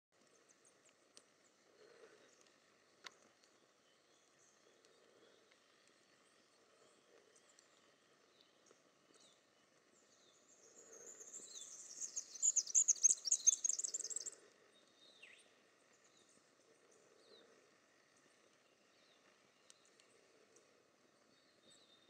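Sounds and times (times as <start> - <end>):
faint bird chirps: 0.3 - 22.0
songbird trilling song: 3.8 - 16.4.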